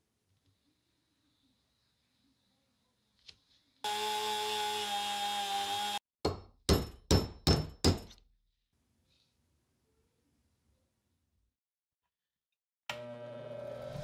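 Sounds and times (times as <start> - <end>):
power drill boring: 3.9 - 6.0.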